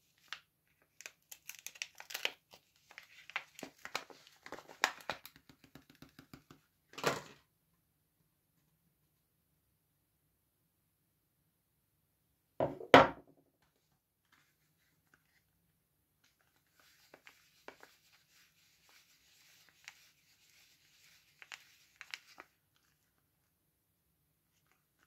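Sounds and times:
soap wrapper crinkling: 0:00.2 - 0:06.1, 0:16.2 - 0:23.2, 0:24.5 - 0:25.0
soap knocking on wooden table: 0:12.6 - 0:13.4.

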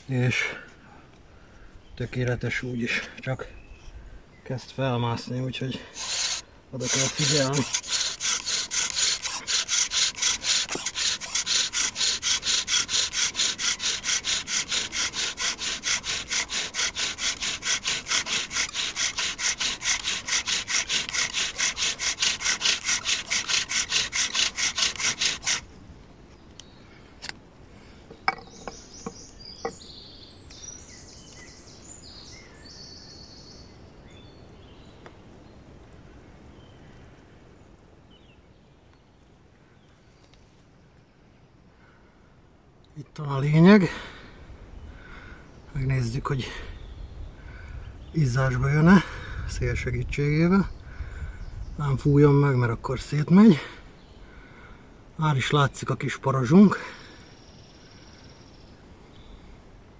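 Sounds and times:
wooden spindle grinding: 0:05.8 - 0:25.7
cord sliding on spindle: 0:05.9 - 0:25.7.

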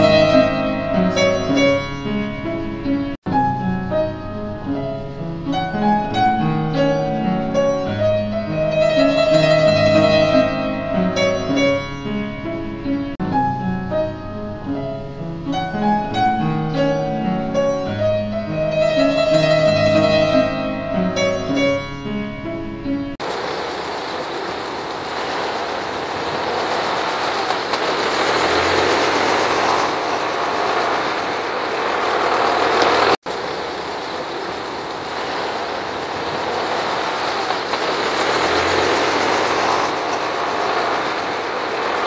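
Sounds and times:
upright piano playing: 0:00.0 - 0:23.2
rushing street noise: 0:23.2 - 0:42.0.

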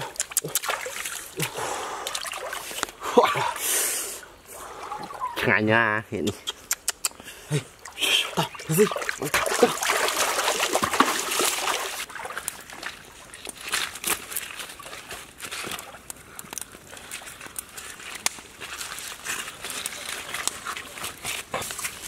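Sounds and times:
creek water splashing: 0:00.0 - 0:05.8, 0:06.4 - 0:22.0
water trickling: 0:07.6 - 0:15.2.

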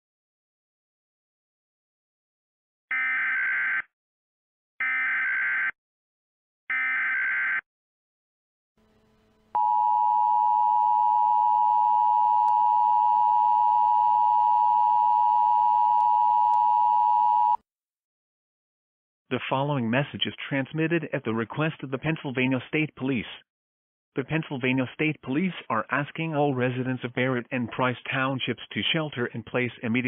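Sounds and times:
steady attention tone: 0:08.8 - 0:16.4.

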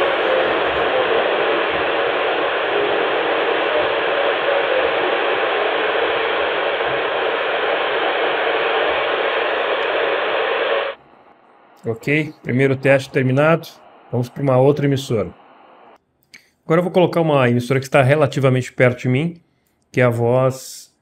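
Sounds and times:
radio static hiss: 0:00.0 - 0:16.0.

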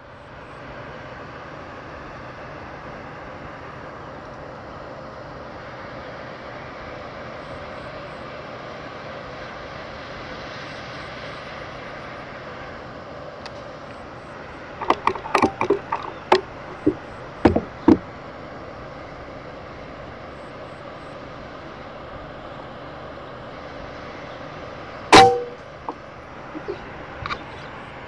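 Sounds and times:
steady background hiss: 0:00.0 - 0:28.0
small clicks and knocks: 0:14.8 - 0:18.1.

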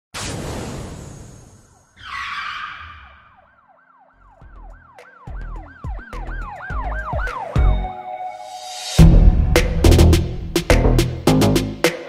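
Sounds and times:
siren-like tone sweeping: 0:00.9 - 0:09.0
heavy low hit: 0:09.0 - 0:11.0.

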